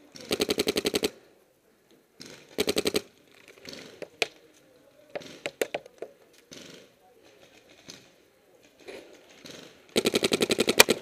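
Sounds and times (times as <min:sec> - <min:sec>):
paintball marker rapid firing: 0:00.2 - 0:01.2, 0:02.2 - 0:03.1, 0:06.5 - 0:06.9, 0:09.4 - 0:11.0.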